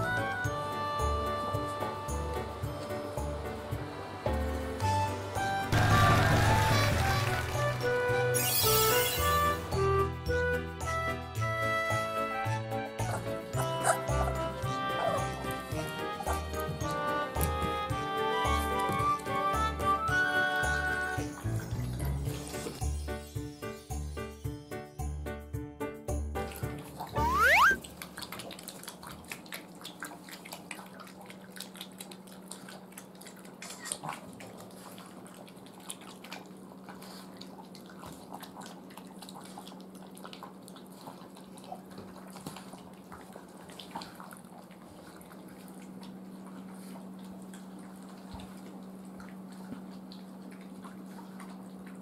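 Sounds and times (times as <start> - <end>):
puppy lapping water: 13.0 - 22.5, 26.4 - 52.0
rising whistle-like sound: 27.2 - 27.8.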